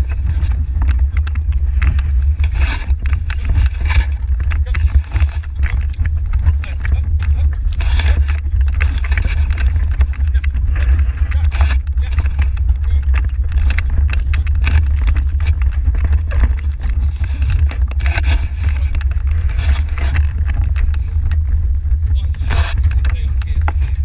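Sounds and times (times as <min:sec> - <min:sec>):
carriage clicking and rattling: 0:00.0 - 0:24.0
carriage rumbling over grass: 0:00.0 - 0:24.0.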